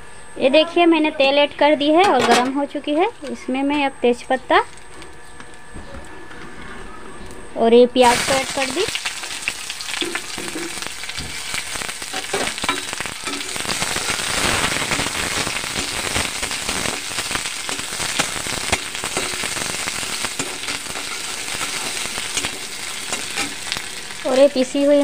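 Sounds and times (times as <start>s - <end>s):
onions sizzling in hot oil: 8.0s - 25.0s.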